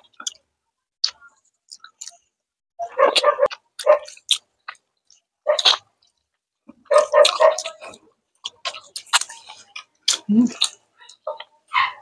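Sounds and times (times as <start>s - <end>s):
wet slurping and chewing: 3.1s - 11.6s.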